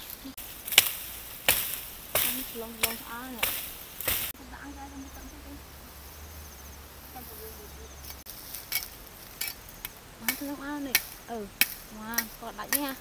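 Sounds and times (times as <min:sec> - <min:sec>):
faint pulsed insect chirping: 0:00.1 - 0:13.0
knife chopping woody branches: 0:00.6 - 0:04.4, 0:10.2 - 0:13.0.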